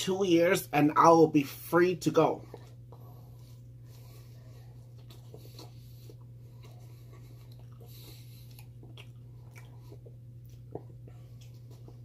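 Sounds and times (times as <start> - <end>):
low electrical hum: 0.0 - 12.0
person chewing food: 2.3 - 12.0
wet mouth clicks and smacks: 7.4 - 12.0.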